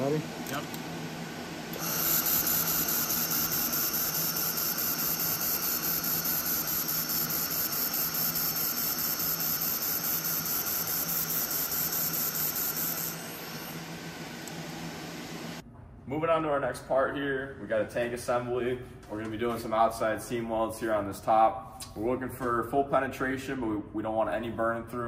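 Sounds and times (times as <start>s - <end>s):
laser welder hissing: 1.7s - 15.6s.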